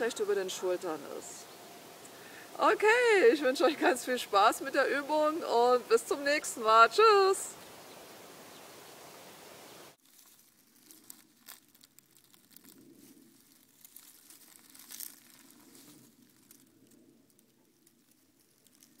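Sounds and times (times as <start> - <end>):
steady outdoor hiss: 0.0 - 19.0
dry leaves crackling and rustling: 9.9 - 19.0.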